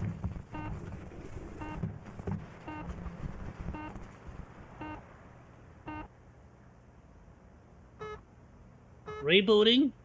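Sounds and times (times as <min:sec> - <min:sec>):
electronic warning beeps: 0:00.5 - 0:00.8, 0:01.6 - 0:01.8, 0:02.6 - 0:02.9, 0:03.7 - 0:04.0, 0:04.8 - 0:05.0, 0:05.9 - 0:06.1, 0:08.0 - 0:08.2, 0:09.1 - 0:09.3.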